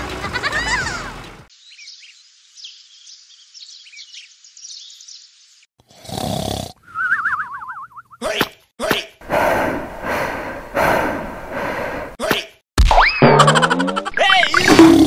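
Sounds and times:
birds chirping: 1.5 - 5.7
cartoon snore: 5.8 - 6.8
descending whistle: 6.8 - 8.2.

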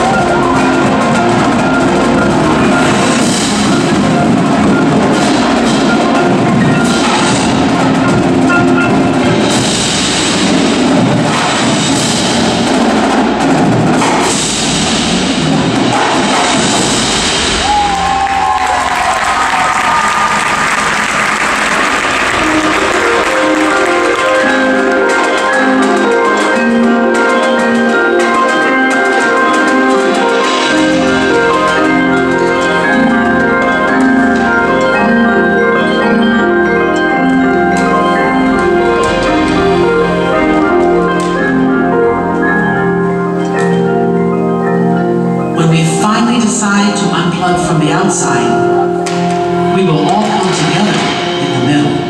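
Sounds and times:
tenor and bass drums: 0.0 - 20.0
marching snare drum: 0.0 - 35.0
marimbas and mallet keyboards: 0.0 - 52.0.

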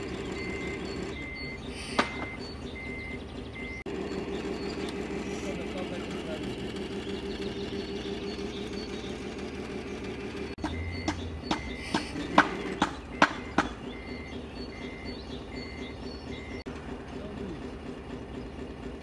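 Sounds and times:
reversing beeper: 0.0 - 16.7
diesel engine idling: 0.0 - 19.0
sharp clicks and knocks: 1.9 - 2.8, 10.5 - 14.1.

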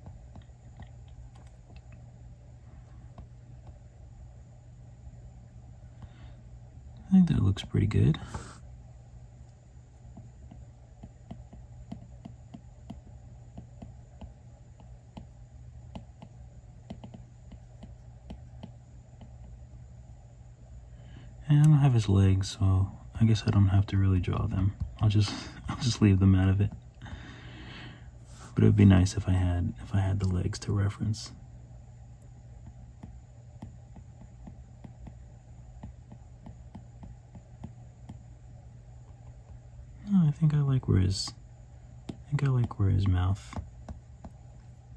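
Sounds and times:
low steady hum: 0.0 - 44.9.

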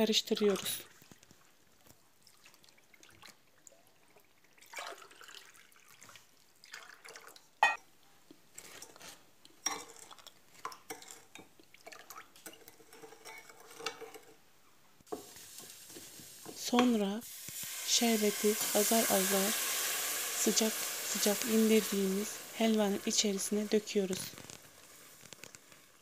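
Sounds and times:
water poured into glass bowl: 4.5 - 7.4.

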